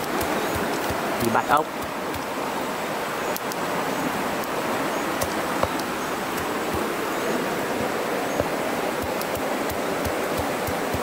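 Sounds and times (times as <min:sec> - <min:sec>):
stone pounding stalks on rock: 0:00.0 - 0:02.3, 0:05.2 - 0:07.0, 0:07.7 - 0:11.0
fast-flowing stream rushing: 0:00.0 - 0:11.0.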